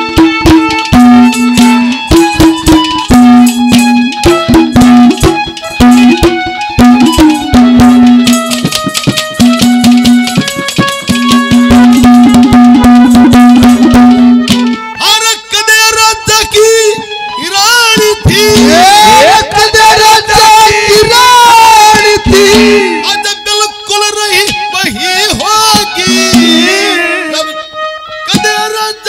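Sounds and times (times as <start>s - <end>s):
fast hand-drum beats: 0.0s - 14.9s, 17.7s - 23.2s, 24.3s - 27.0s
harmonium melody: 0.0s - 29.0s.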